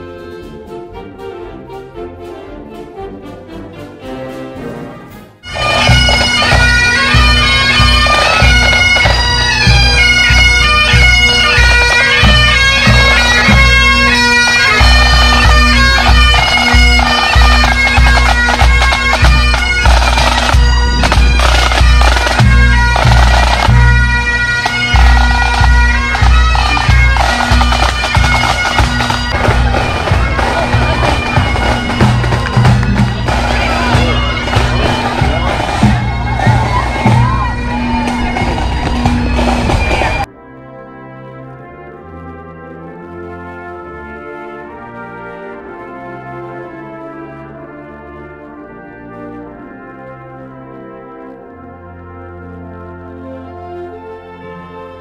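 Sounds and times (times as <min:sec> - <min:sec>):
bagpipes playing a tune: 0:05.4 - 0:47.9, 0:48.5 - 0:55.0
snare and bass drums: 0:16.2 - 0:23.9, 0:24.6 - 0:37.4.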